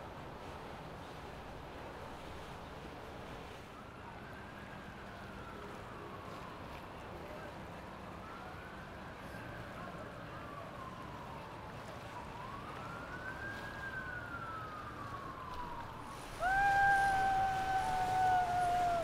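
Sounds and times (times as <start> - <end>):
steady siren tone: 8.2 - 19.0
siren wailing: 10.8 - 19.0.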